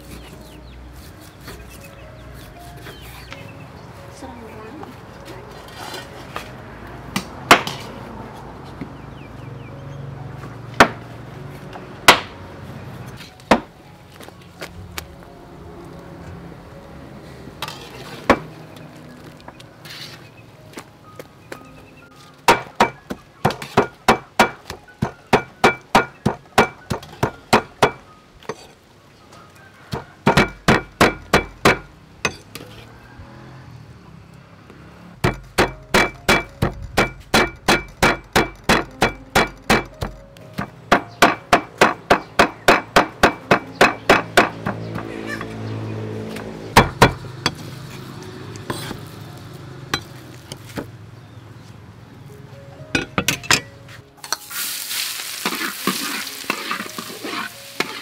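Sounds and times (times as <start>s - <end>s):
cleavers chopping on wooden board: 7.1s - 7.9s, 12.1s - 12.3s, 13.5s - 13.7s, 22.5s - 28.0s, 29.9s - 31.9s, 35.2s - 45.1s, 46.4s - 47.3s.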